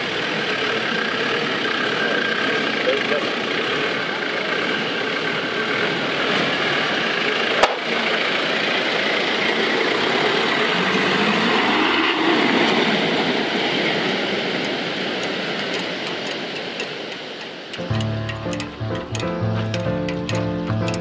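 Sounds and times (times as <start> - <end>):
sharp click: 15.2 - 21.0.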